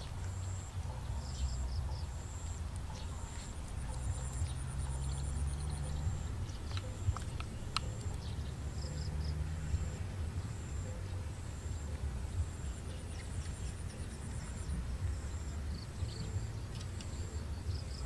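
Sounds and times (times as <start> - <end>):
insects chirping in trills: 0.0 - 18.0
bamboo sticks clicking: 6.6 - 8.3.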